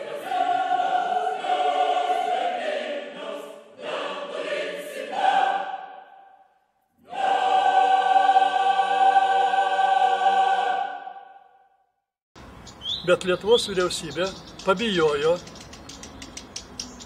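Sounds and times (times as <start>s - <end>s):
choir singing held chords: 0.0s - 11.8s.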